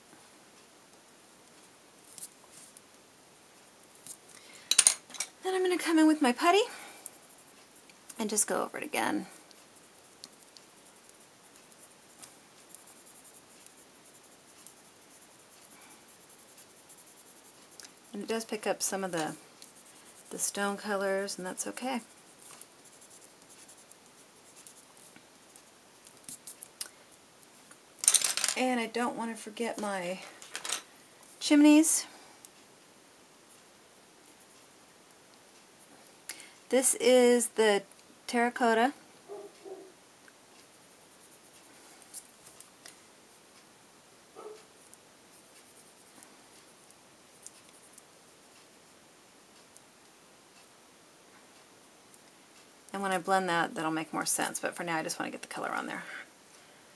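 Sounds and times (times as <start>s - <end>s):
pencil scratching on paper: 9.5s - 25.7s.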